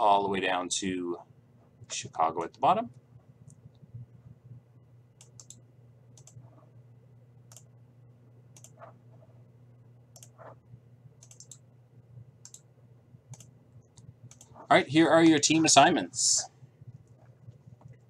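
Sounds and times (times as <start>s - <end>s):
low hum: 0.0s - 18.0s
mouse and keyboard clicks: 5.2s - 5.6s, 6.2s - 6.5s, 7.5s - 7.7s, 8.6s - 9.0s, 10.1s - 10.6s, 11.2s - 11.6s, 12.4s - 12.6s, 13.3s - 14.6s.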